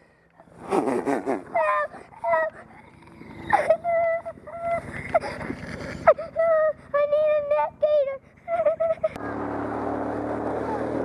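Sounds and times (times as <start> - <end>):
vehicle engine running: 0.0 - 11.0
child crying: 1.5 - 9.2.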